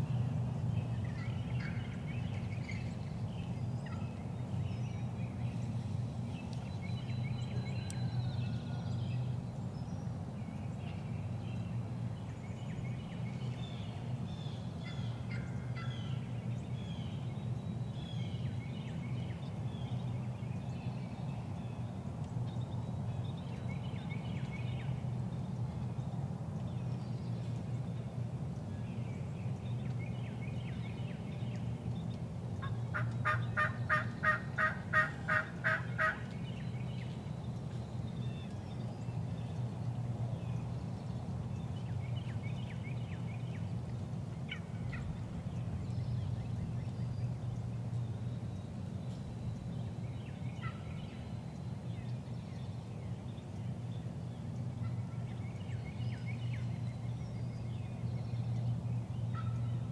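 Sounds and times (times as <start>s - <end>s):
songbird chirps: 0.0s - 59.9s
turkeys calling: 32.6s - 36.4s, 59.3s - 59.6s.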